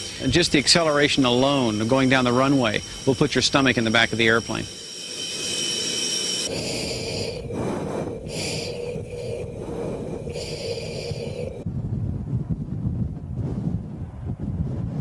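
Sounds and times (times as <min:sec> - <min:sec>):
high engine whine: 0:00.0 - 0:11.6
hissing breaths through oxygen mask: 0:00.0 - 0:11.6
jet engine hum: 0:00.0 - 0:11.7.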